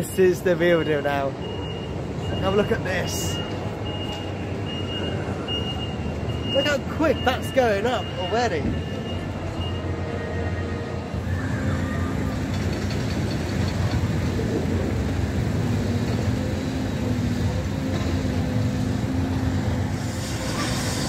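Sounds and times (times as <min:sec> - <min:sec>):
crane diesel engines rumbling: 0:00.0 - 0:21.0
short hiss: 0:20.0 - 0:21.0.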